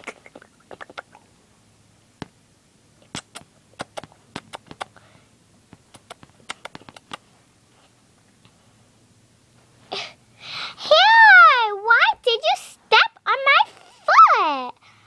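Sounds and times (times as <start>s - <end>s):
wet kissing smacks: 0.0s - 1.2s, 3.0s - 5.0s, 5.7s - 7.2s.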